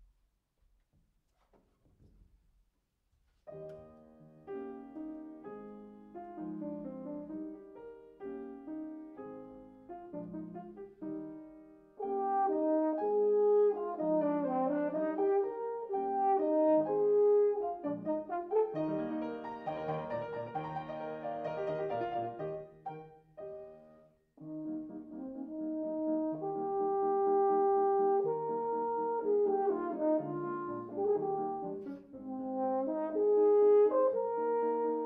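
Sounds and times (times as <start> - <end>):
grand piano playing: 3.5 - 35.0
french horn melody: 12.0 - 23.0, 24.4 - 35.0.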